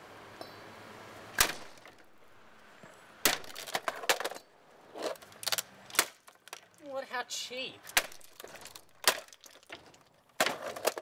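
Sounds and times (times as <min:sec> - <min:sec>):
plastic breaking clatter: 0:03.2 - 0:04.5, 0:05.1 - 0:06.8, 0:07.9 - 0:11.0.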